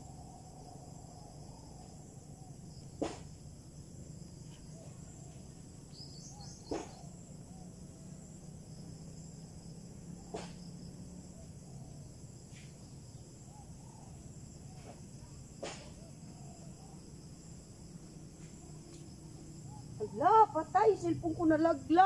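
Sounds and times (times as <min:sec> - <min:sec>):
crickets chirring: 0:00.0 - 0:22.0.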